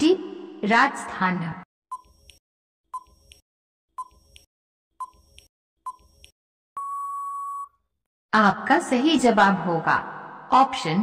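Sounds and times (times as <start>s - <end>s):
long steady beep: 6.8s - 7.8s.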